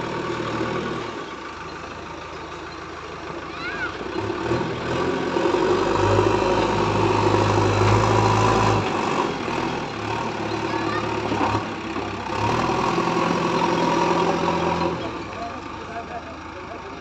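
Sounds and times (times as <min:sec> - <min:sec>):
diesel engine working: 0:00.0 - 0:17.0.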